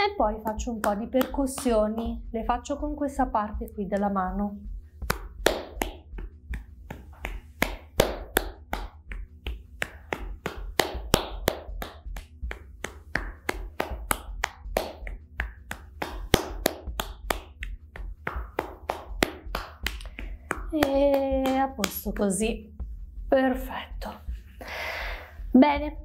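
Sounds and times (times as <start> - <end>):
hand slapping bare foot: 0.3 - 2.2, 4.8 - 22.6.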